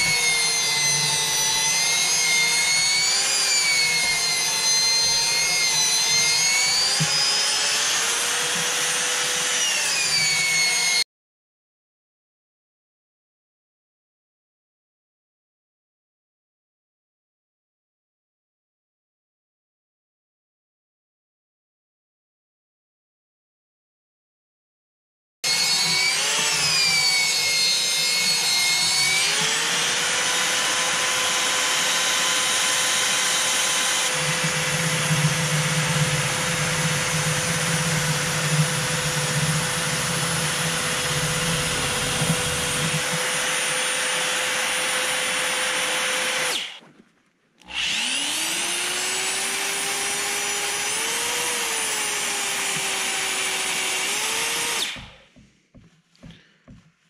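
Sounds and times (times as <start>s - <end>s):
electric drill mixing grease: 0.0s - 11.0s, 25.4s - 46.9s, 47.6s - 55.5s.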